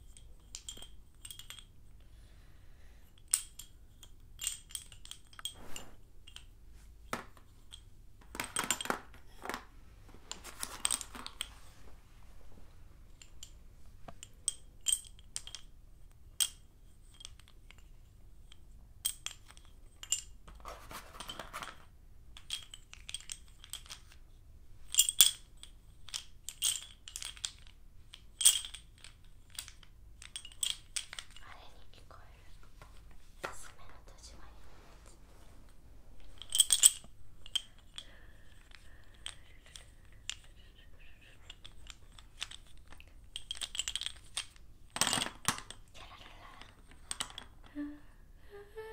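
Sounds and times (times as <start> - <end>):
chalk sticks clinking: 0.0 - 1.8, 36.3 - 47.5
chalk bundle rattling: 20.5 - 21.9.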